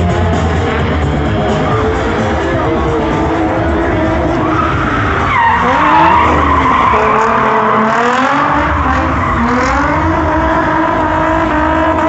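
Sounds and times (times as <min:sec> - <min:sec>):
car engines revving: 0:00.0 - 0:12.0
tyres squealing on pavement: 0:02.9 - 0:11.3.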